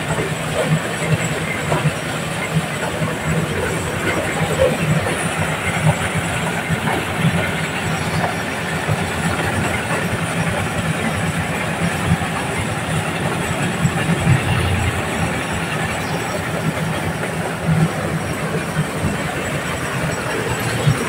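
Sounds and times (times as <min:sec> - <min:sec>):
engine hum: 0:00.0 - 0:21.0.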